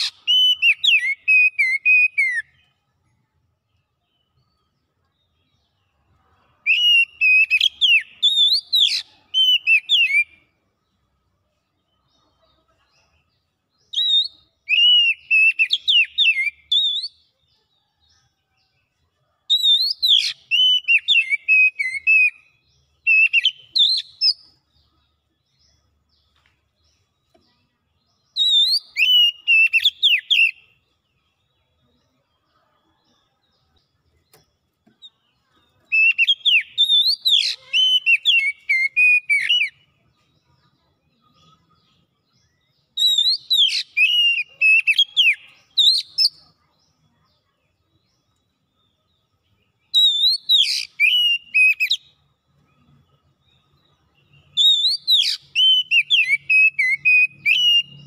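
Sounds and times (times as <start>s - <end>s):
bird whistling song: 0.0s - 2.7s, 6.6s - 10.5s, 13.8s - 17.2s, 19.5s - 24.6s, 28.2s - 30.8s, 35.8s - 40.0s, 41.2s - 46.5s, 48.6s - 58.0s.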